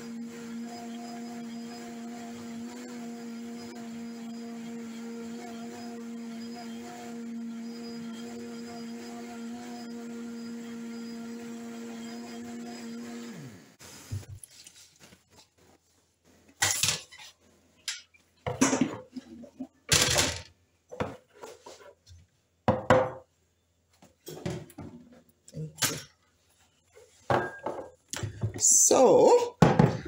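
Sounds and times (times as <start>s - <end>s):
blender motor spinning down: 0.0s - 13.8s.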